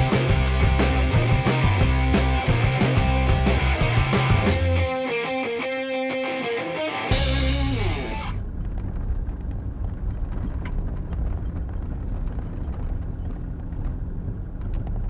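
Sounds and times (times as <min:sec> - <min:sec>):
vehicle driving rumble: 0:00.0 - 0:04.8, 0:07.1 - 0:15.0
music chord ringing out: 0:00.2 - 0:08.4.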